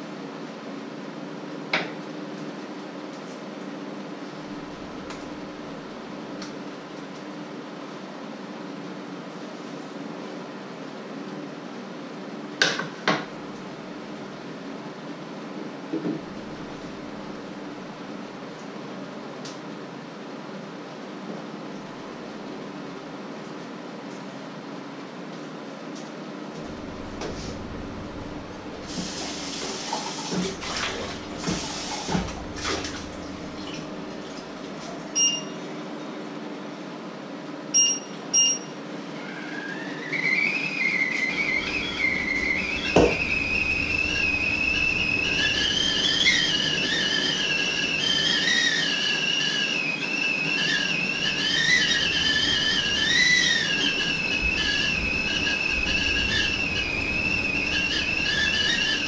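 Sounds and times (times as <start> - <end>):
kettle whistling: 4.4 - 6.0, 16.2 - 17.6, 26.6 - 35.3, 39.2 - 59.0
hissing noise: 26.6 - 34.9, 41.3 - 47.8, 52.1 - 59.0
short electronic beeps: 35.2 - 35.6, 37.8 - 38.8.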